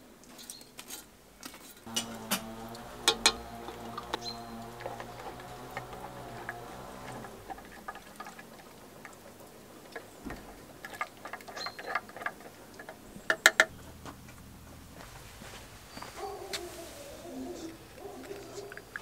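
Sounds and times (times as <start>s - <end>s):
wooden spoon stirring coffee: 1.9s - 13.8s, 17.6s - 19.0s.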